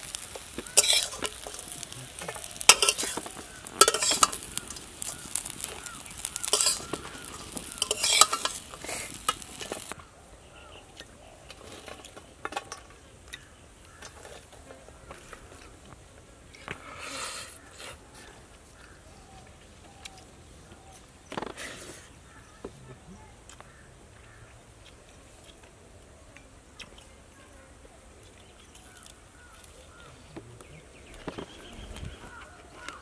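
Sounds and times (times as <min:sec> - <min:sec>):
fish sizzling in hot oil: 0:00.0 - 0:10.0
metal spatula clanking on pan: 0:00.6 - 0:05.6, 0:06.2 - 0:08.6.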